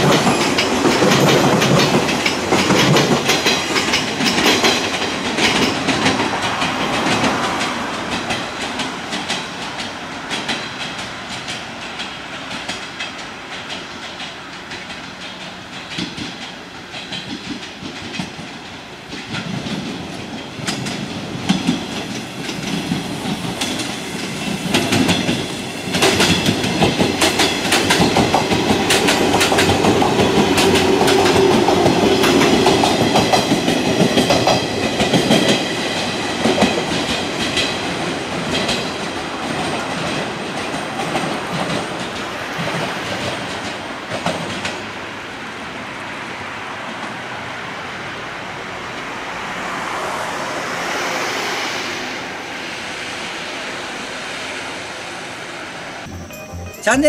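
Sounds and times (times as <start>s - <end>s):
wheels clicking over rail joints: 0.0s - 44.9s
electric train passing: 0.0s - 57.0s.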